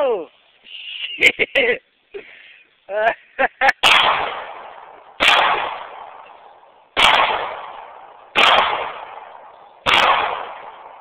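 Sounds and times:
pistol shots with echo: 0:03.8 - 0:11.0.

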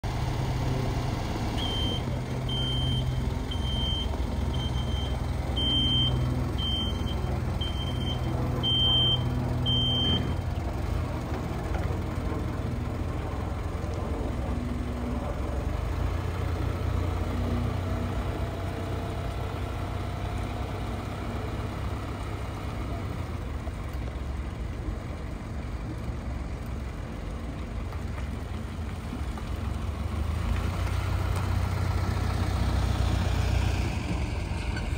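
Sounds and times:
truck engine rumble: 0:00.0 - 0:34.9
backup alarm beeping: 0:01.6 - 0:10.2.

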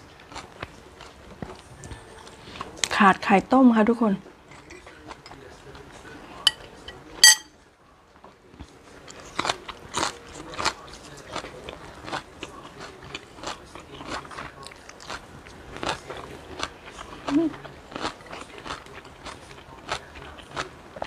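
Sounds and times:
crunching and chewing greens: 0:00.0 - 0:03.0, 0:08.1 - 0:21.0
sharp clink: 0:06.5 - 0:07.5.

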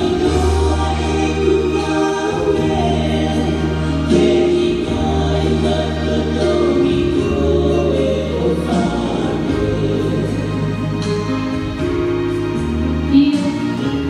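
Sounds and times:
choir singing a hymn: 0:00.0 - 0:12.4.

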